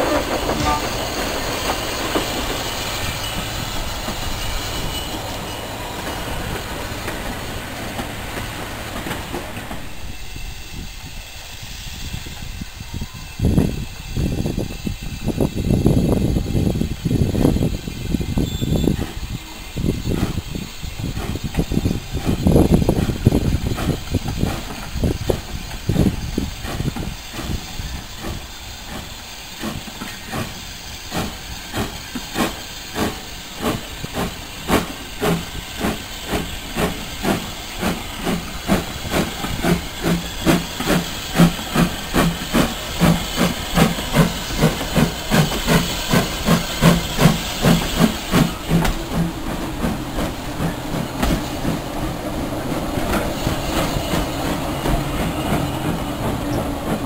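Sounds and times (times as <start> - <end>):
steady hiss of steam: 0.0 - 57.0
steam locomotive chuffing: 0.0 - 57.0.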